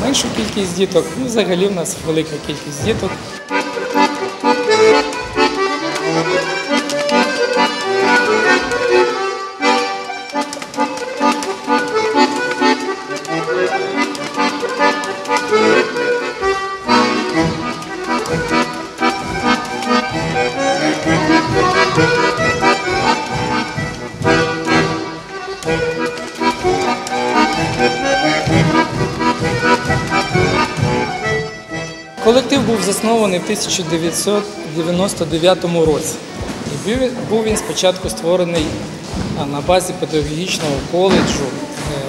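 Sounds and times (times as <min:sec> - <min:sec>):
accordion folk dance tune: 0:00.0 - 0:42.0
low beat: 0:15.4 - 0:42.0.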